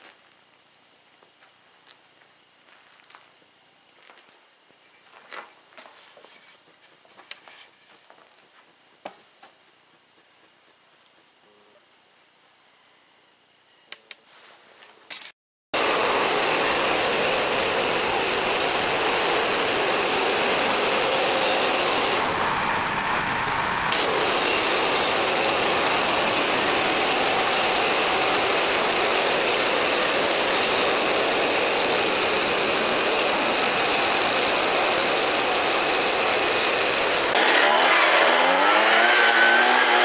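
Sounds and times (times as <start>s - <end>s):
bandsaw mill sawing a log: 15.8s - 40.0s.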